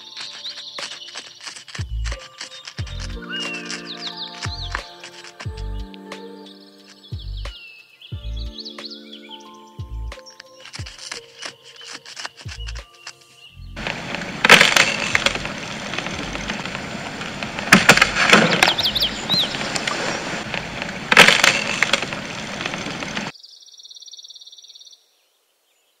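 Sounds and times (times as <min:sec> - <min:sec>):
tree trunk cracking: 0:00.0 - 0:05.8, 0:10.6 - 0:13.2, 0:13.8 - 0:23.3
rustling of leaves and limbs: 0:00.0 - 0:08.2, 0:10.1 - 0:23.3
tree crashing through branches: 0:13.8 - 0:23.3.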